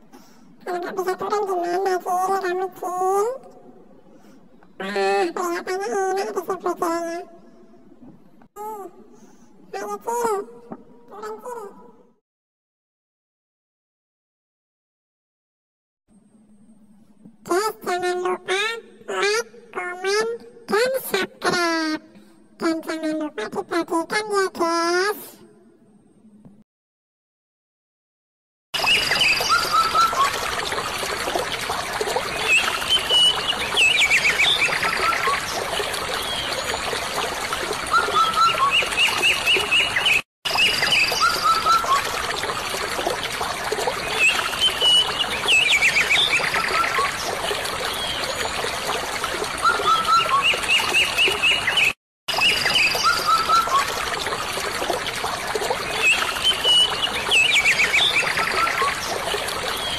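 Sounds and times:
birds chirping and trilling: 0:28.8 - 0:42.5, 0:43.7 - 0:48.8, 0:49.6 - 0:54.1, 0:55.8 - 0:59.9
running water trickling: 0:28.8 - 0:59.9.

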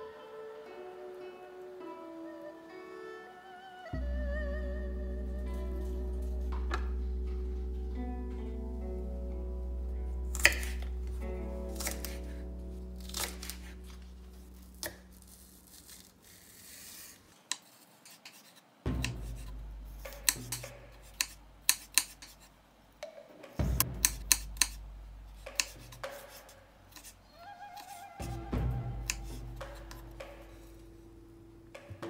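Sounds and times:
knife chopping on wooden board: 0:18.9 - 0:22.4, 0:23.8 - 0:24.8, 0:25.4 - 0:27.1.

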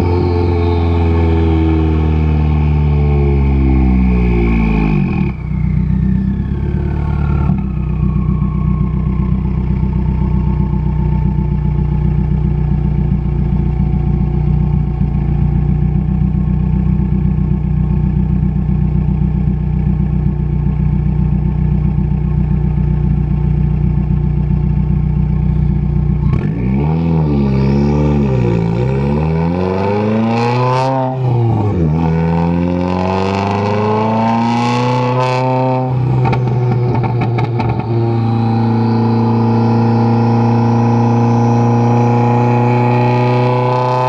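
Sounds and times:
car engine idling: 0:00.0 - 0:26.5, 0:35.8 - 0:42.4
high turbo whistle: 0:03.5 - 0:12.7, 0:35.0 - 0:43.0.

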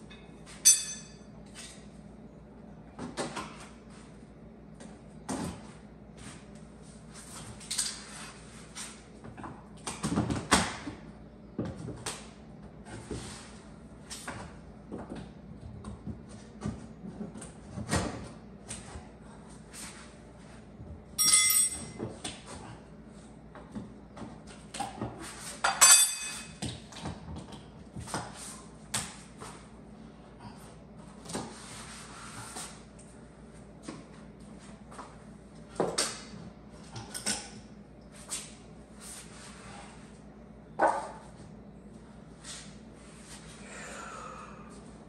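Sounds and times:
ringing metallic clangs: 0:00.6 - 0:01.2, 0:21.2 - 0:22.0, 0:25.8 - 0:26.5.

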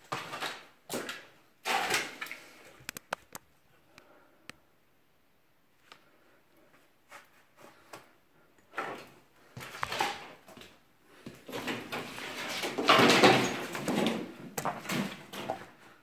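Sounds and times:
wood and debris scraping and crunching: 0:11.4 - 0:15.6.

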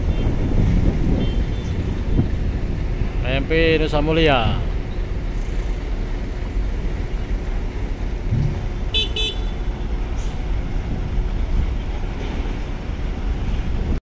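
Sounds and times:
low rumble of engines: 0:00.0 - 0:14.0
high vehicle horn toots: 0:08.9 - 0:09.7.

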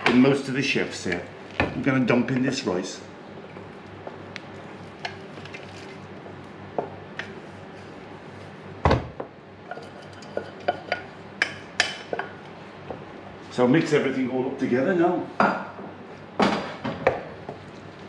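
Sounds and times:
wooden spoon scraping metal saucepan: 0:09.7 - 0:11.1.

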